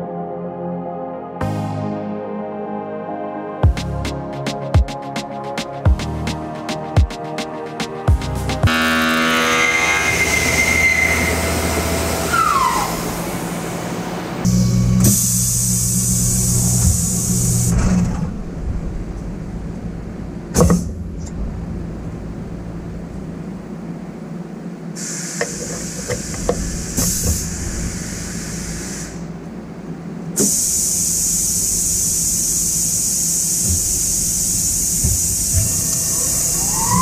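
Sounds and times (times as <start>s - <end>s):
steady hiss: 13.4s - 18.0s, 21.8s - 37.0s.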